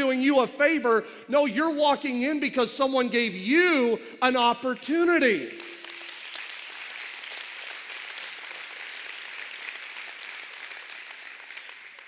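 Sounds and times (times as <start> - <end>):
congregation applauding: 4.8 - 12.0.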